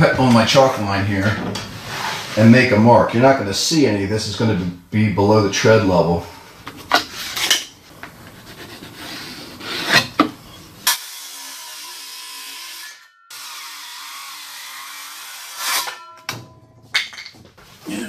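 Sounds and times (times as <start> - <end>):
power saw cutting wood: 10.8 - 16.0.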